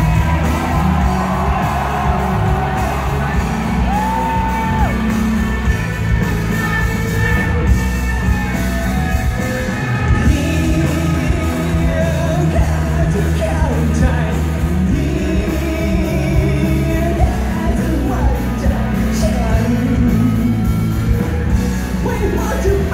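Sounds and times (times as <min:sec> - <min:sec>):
rock band playing loud: 0:00.0 - 0:22.9
man singing: 0:10.1 - 0:20.9, 0:22.0 - 0:22.9.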